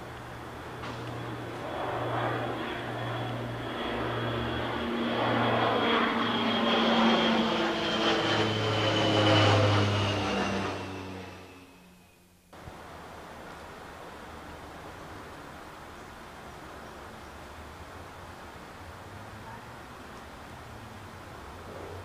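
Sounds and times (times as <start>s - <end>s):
engine passing by: 0.0s - 12.0s.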